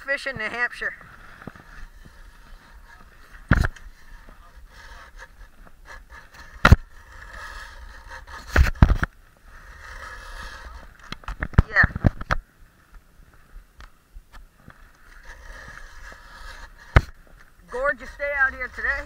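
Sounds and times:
steady low hiss: 0.0s - 19.0s.

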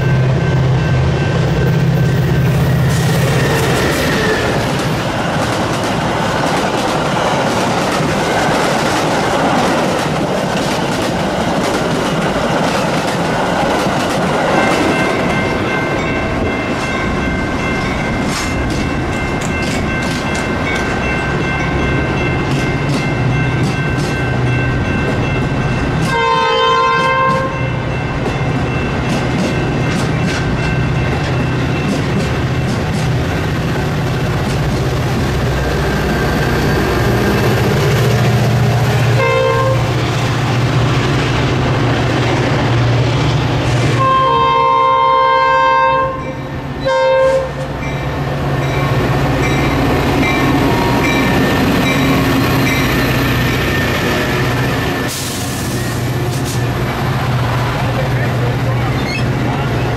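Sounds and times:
train passing with rumble: 0.0s - 59.9s
train horn: 2.3s - 4.7s, 26.0s - 27.8s, 39.1s - 40.0s, 43.9s - 47.8s.

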